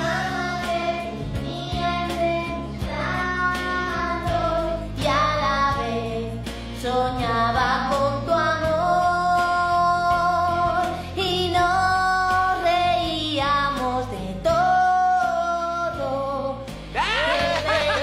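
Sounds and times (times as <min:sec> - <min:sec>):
girl singing into a microphone: 0:00.0 - 0:16.7
backing track: 0:16.7 - 0:18.0.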